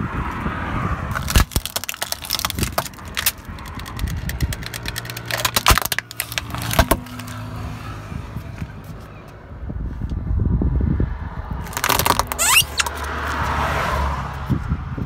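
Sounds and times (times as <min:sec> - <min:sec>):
car humming: 0:00.0 - 0:14.8
plastic cracking and snapping: 0:01.1 - 0:07.4, 0:11.6 - 0:13.1.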